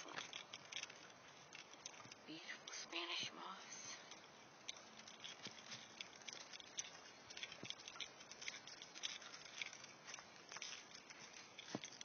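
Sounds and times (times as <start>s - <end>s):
footsteps on dry leaves: 4.8s - 12.0s.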